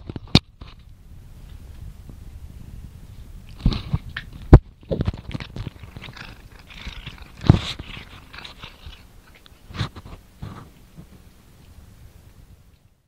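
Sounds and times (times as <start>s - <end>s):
cat chewing grass: 3.1s - 13.0s.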